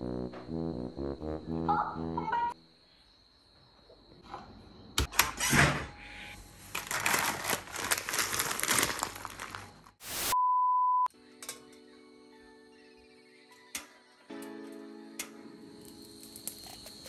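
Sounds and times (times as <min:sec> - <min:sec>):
packaging crinkling: 0:06.6 - 0:10.0.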